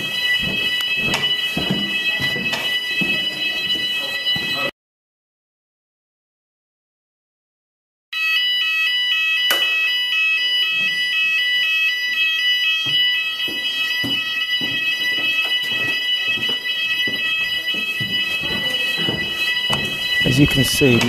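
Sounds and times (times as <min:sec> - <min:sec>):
pulsing fire alarm tone: 0:00.0 - 0:04.7, 0:08.1 - 0:21.0.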